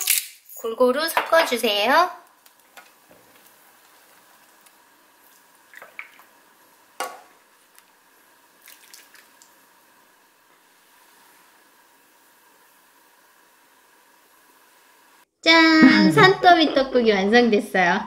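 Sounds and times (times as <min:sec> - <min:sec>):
broth pouring and dripping: 0:08.6 - 0:09.6.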